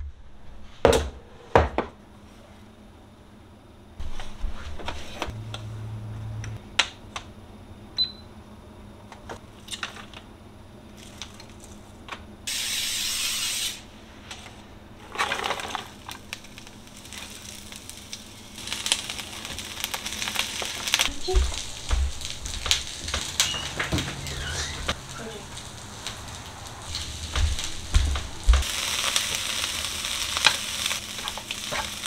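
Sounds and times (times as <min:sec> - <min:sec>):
steady hiss: 0:12.5 - 0:14.2, 0:16.2 - 0:32.0
containers and utensils on countertop: 0:13.4 - 0:16.5
rustling of chopped vegetables: 0:15.0 - 0:32.0.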